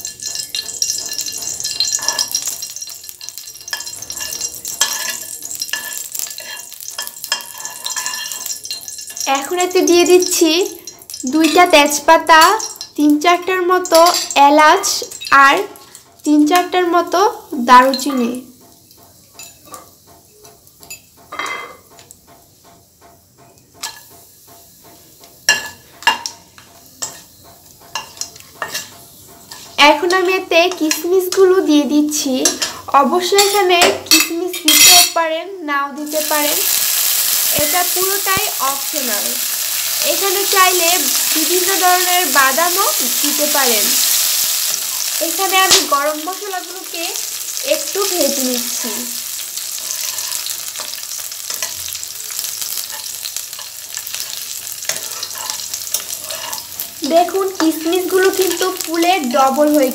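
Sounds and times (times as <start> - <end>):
spatula scraping a pan: 0.0 - 9.3, 23.8 - 31.0, 38.8 - 59.0
fat sizzling in oil: 0.0 - 59.9.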